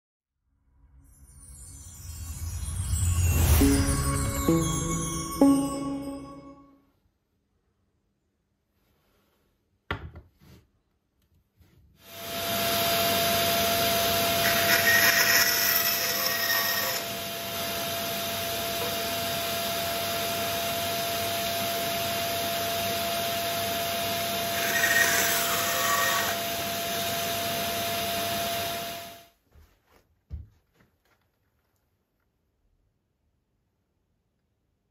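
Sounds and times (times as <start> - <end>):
band saw humming: 13.8 - 18.0, 24.2 - 27.4
saw cutting bamboo: 13.9 - 17.2, 24.4 - 26.7.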